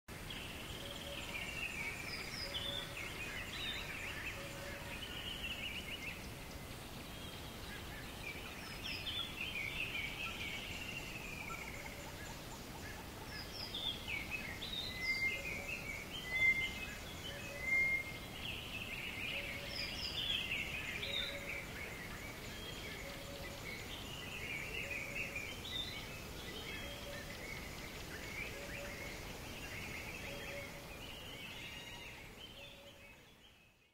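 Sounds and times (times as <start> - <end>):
birds chirping and warbling: 0.1 - 33.9
soft hiss: 0.1 - 33.9
loud whistled bird notes: 14.8 - 18.2.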